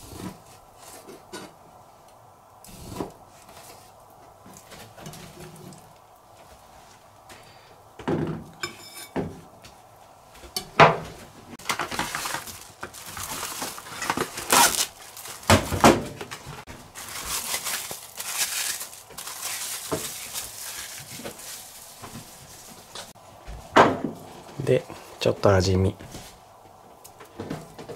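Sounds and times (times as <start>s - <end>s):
cling wrap crinkling: 11.6s - 23.2s.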